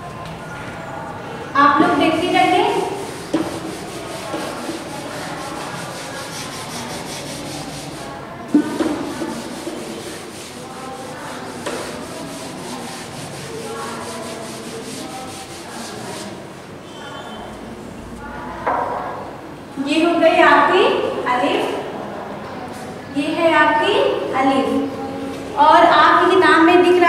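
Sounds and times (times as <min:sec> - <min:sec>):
eraser wiping blackboard: 0:02.6 - 0:16.4.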